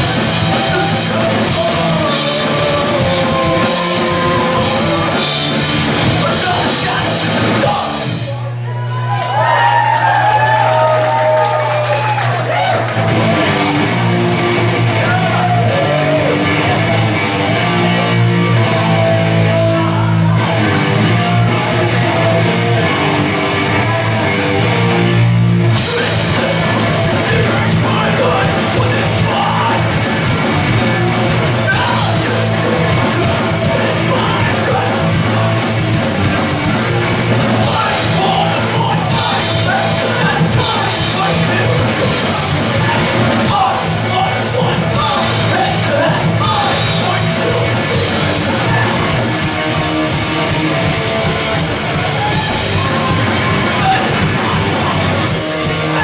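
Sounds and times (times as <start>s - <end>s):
drums and cymbals crashing: 0.0s - 8.4s, 25.7s - 56.0s
bass guitar notes: 0.0s - 56.0s
electric guitar: 0.0s - 56.0s.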